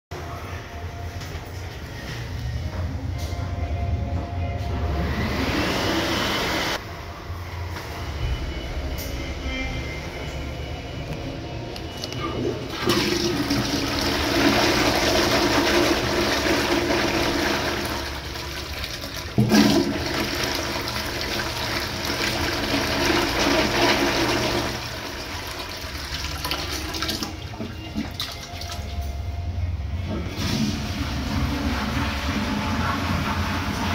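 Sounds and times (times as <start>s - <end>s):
toilet flushing: 12.2s - 29.1s, 30.1s - 33.9s.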